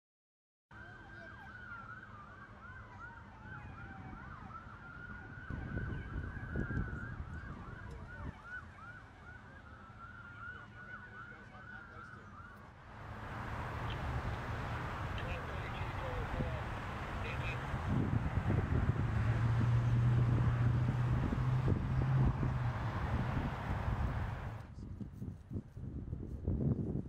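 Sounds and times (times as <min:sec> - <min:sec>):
siren wailing: 0:00.8 - 0:12.6, 0:13.4 - 0:24.5
siren yelping: 0:00.8 - 0:12.6, 0:13.6 - 0:24.0
broad rushing noise: 0:13.0 - 0:24.6.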